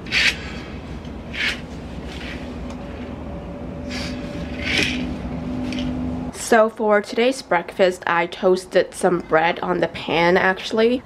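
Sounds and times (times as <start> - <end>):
curtains sliding on a rod: 0.0 - 0.6, 1.3 - 3.1, 3.9 - 6.0
steady low hum: 0.0 - 7.9.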